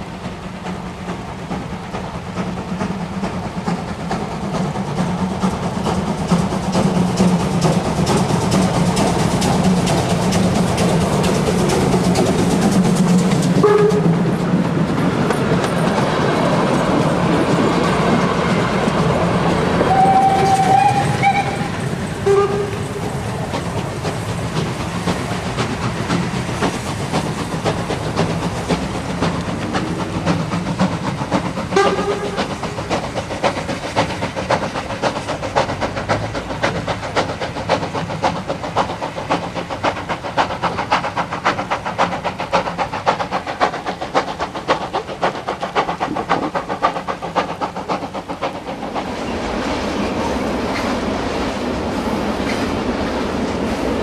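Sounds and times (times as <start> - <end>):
freight train rolling: 0.0 - 54.0
steam locomotive chuffing: 0.0 - 54.0
steam whistle blast: 13.6 - 14.2, 19.9 - 22.8, 31.8 - 32.5.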